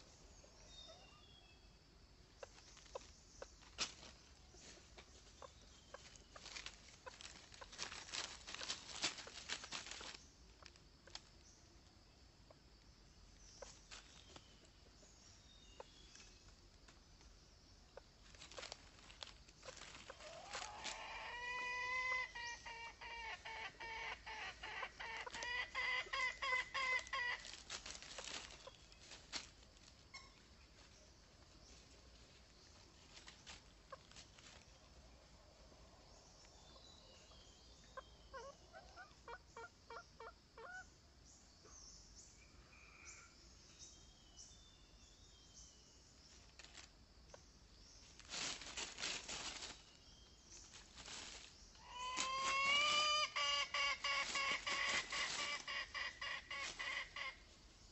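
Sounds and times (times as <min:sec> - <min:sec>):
junglefowl clucking: 0:02.4 - 0:11.3, 0:18.0 - 0:29.5, 0:37.8 - 0:40.9, 0:50.7 - 0:57.5
bird scratching in dry leaves: 0:02.5 - 0:11.3, 0:18.2 - 0:31.0, 0:31.7 - 0:34.8, 0:48.0 - 0:57.4.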